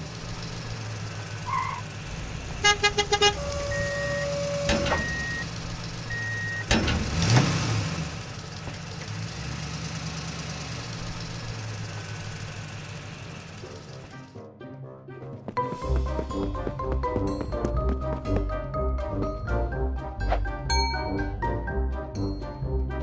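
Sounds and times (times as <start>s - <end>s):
horn toots: 2.6s - 5.4s.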